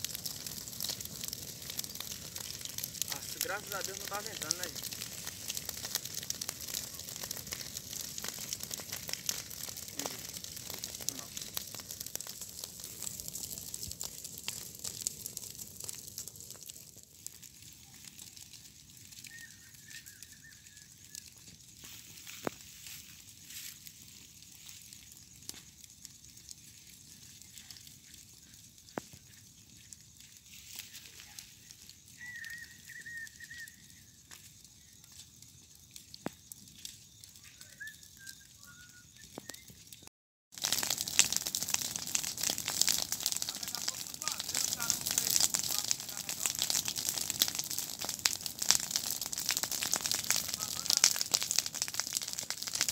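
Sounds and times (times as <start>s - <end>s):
steady hiss: 0.0s - 12.1s
fire crackling: 0.0s - 52.9s
high wavering whistle: 32.2s - 34.0s, 37.6s - 39.8s.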